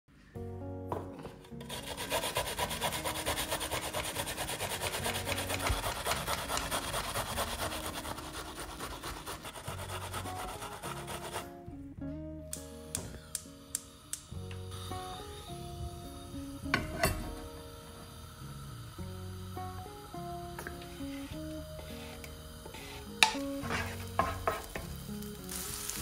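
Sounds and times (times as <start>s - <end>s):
background music: 0.1s - 26.0s
onion scraping on box grater: 1.6s - 11.5s.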